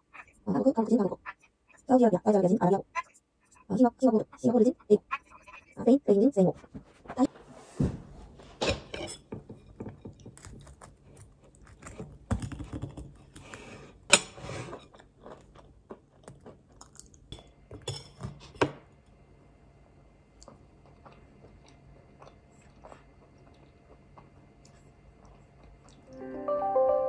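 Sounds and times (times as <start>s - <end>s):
person chewing crunchy food: 10.2s - 13.6s, 14.6s - 17.4s, 20.4s - 26.1s.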